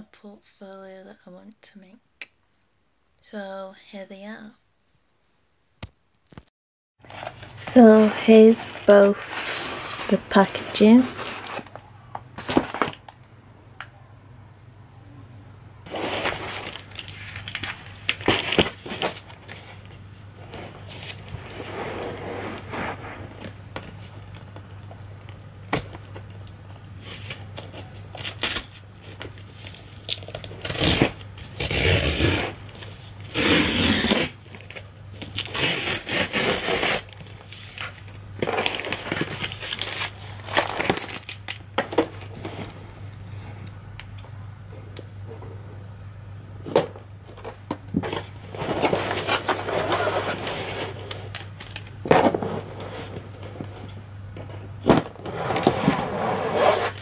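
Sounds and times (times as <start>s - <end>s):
packaging rustling: 7.0s - 11.8s, 12.4s - 13.2s, 15.9s - 21.8s, 34.1s - 43.2s, 47.3s - 53.7s
low steady hum: 7.0s - 57.0s
tape and cardboard tearing: 15.9s - 19.6s, 27.0s - 28.8s, 29.6s - 42.5s, 48.0s - 53.2s, 54.8s - 57.0s.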